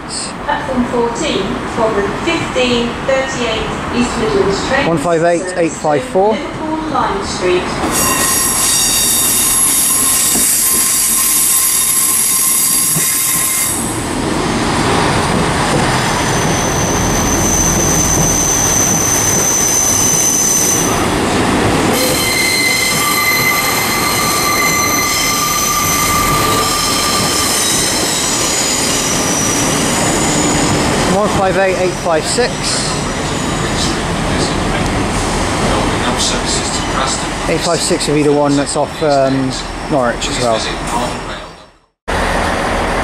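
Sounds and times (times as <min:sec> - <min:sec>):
train wheels squealing on rails: 0:07.8 - 0:14.0, 0:15.9 - 0:21.2, 0:21.9 - 0:34.6.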